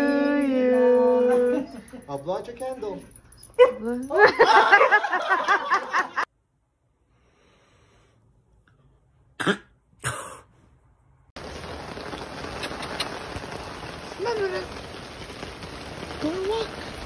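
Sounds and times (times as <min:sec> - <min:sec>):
person coughing: 0:09.4 - 0:10.5
steady hiss: 0:11.4 - 0:17.0.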